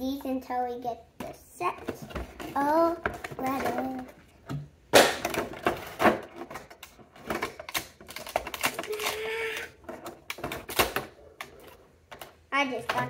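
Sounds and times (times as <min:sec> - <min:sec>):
plastic packaging clicking and crinkling: 0:05.0 - 0:12.4.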